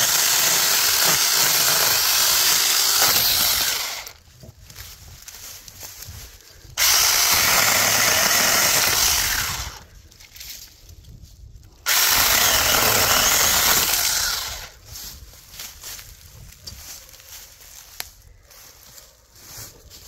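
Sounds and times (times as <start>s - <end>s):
mini chainsaw running: 0.0s - 4.2s, 6.8s - 9.9s, 11.9s - 14.8s.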